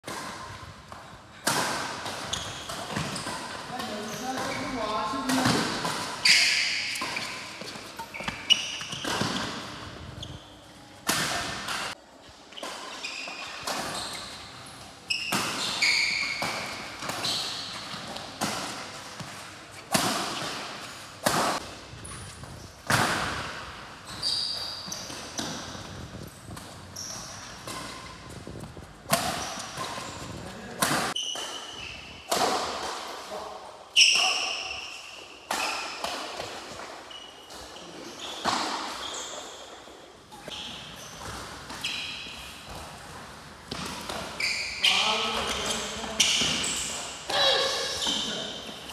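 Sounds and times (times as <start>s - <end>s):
racket hitting shuttlecock: 0.1s - 10.0s, 11.0s - 12.0s, 15.2s - 21.8s, 29.1s - 33.2s, 43.7s - 44.4s
shoe squeaks: 2.0s - 11.0s, 12.5s - 18.3s, 24.0s - 32.3s, 33.9s - 36.1s, 37.0s - 42.8s, 43.7s - 48.9s.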